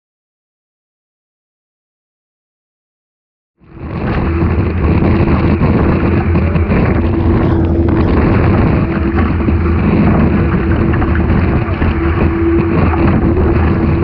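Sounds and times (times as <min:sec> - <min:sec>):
steady hum: 0:03.6 - 0:14.0
water rushing past hull: 0:03.6 - 0:14.0
wind buffeting microphone: 0:03.6 - 0:14.0.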